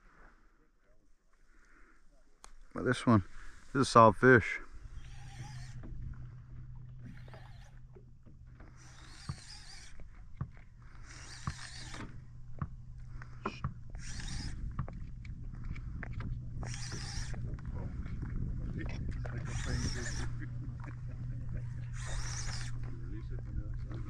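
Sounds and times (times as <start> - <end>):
low steady hum: 2.2 - 24.0
small clicks: 5.0 - 12.2.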